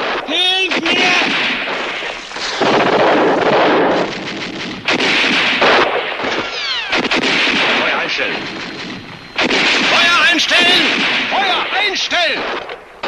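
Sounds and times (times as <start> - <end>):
dense gunfire bursts: 0.0 - 13.0
falling whine: 7.6 - 11.6.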